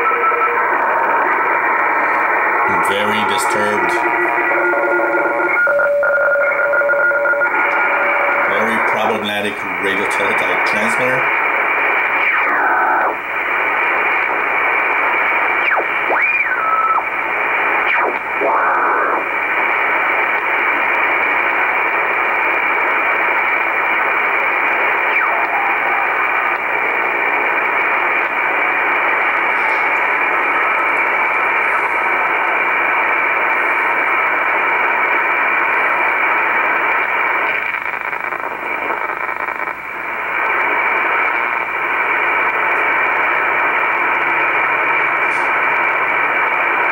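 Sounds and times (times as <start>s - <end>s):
radio static hiss: 0.0s - 46.9s
gliding radio whistles: 13.9s - 19.6s, 24.7s - 34.8s.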